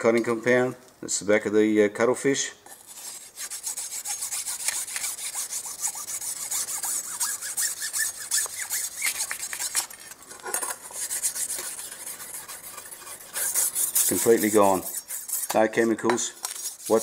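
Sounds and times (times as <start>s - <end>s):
bone scraping on knife blade: 2.7s - 17.0s.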